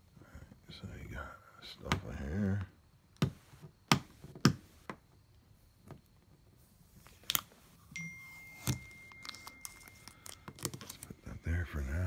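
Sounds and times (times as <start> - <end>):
high thin tone: 7.9 - 10.4.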